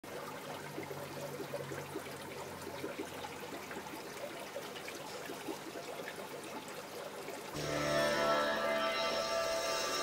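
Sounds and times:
aquarium water bubbling: 0:00.0 - 0:07.6.

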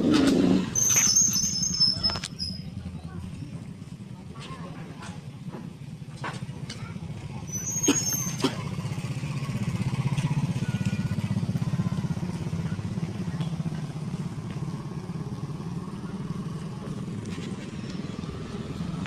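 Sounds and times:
diesel truck engine idling: 0:08.7 - 0:19.0.

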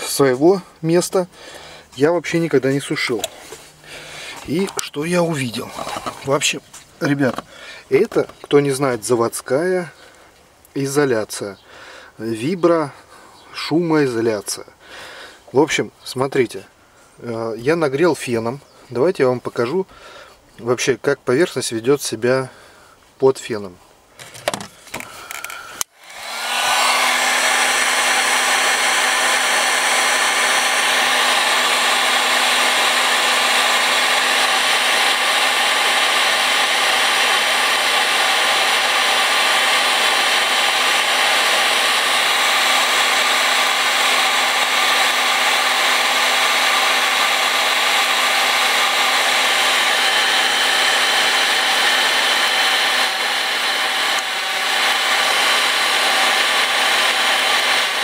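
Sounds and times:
heat gun blowing: 0:00.0 - 0:08.4, 0:24.2 - 0:58.0
heat gun switch: 0:24.5 - 0:58.0.

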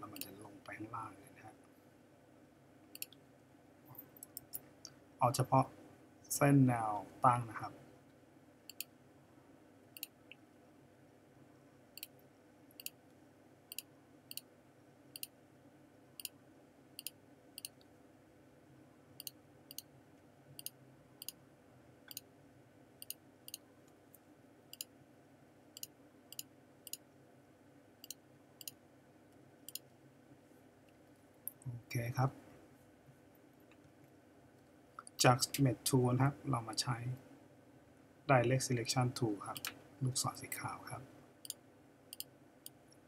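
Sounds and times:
faint steady hum: 0:00.0 - 0:43.0
mouse button clicking: 0:03.0 - 0:03.2.

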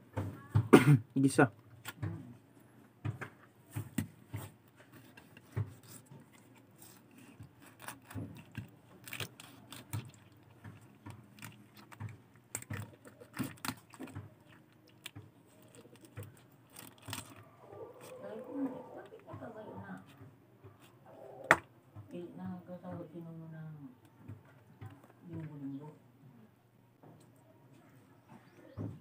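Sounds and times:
knife cutting fish on wood: 0:04.4 - 0:18.1.

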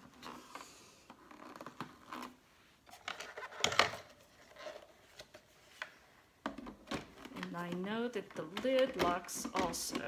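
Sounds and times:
plastic clicks and scrapes: 0:00.0 - 0:10.0
plastic clatter: 0:01.1 - 0:05.5, 0:06.4 - 0:10.0.

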